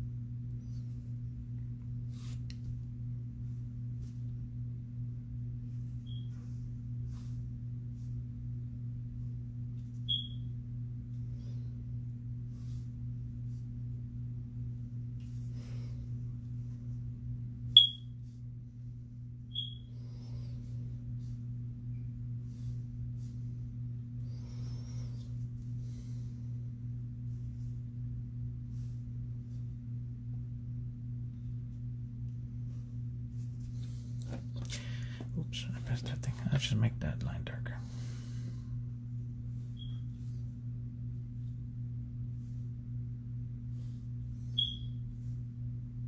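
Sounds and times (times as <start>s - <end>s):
steady low hum: 0.0s - 46.0s
short high-pitched chirps: 10.1s - 10.4s, 17.8s - 18.1s, 19.5s - 19.9s, 44.6s - 45.0s.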